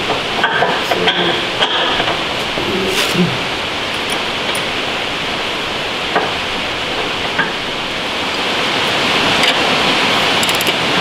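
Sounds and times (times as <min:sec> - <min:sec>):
ratchet clicks: 0:10.4 - 0:10.8.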